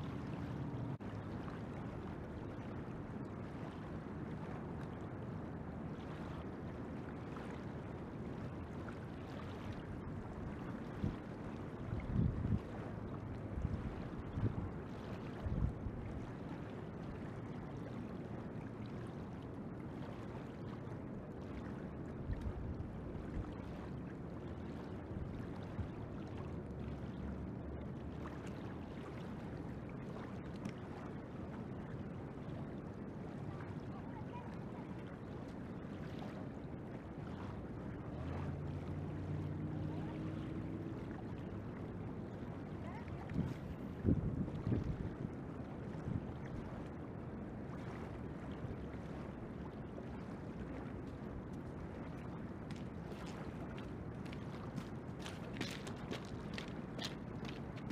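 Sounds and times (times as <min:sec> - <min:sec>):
low steady hum: 0:00.0 - 0:57.9
river water rushing: 0:37.4 - 0:44.1, 0:52.6 - 0:57.9
wind thumping microphone: 0:43.3 - 0:45.2.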